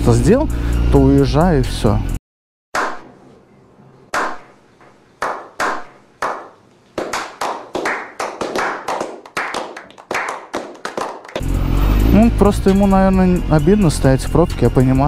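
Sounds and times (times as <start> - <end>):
hand clapping with echo: 5.2 - 11.4.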